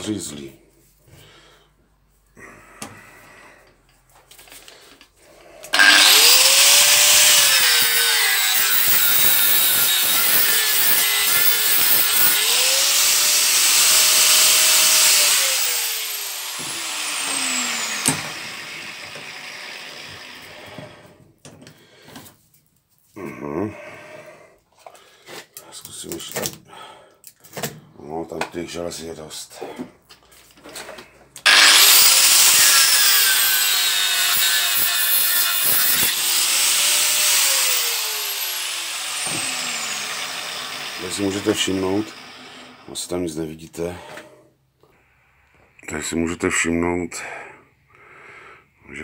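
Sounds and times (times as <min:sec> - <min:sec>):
angle grinder cutting metal: 0:05.7 - 0:21.0, 0:31.5 - 0:43.0
grinder spinning down whine: 0:05.8 - 0:20.8, 0:31.5 - 0:42.9.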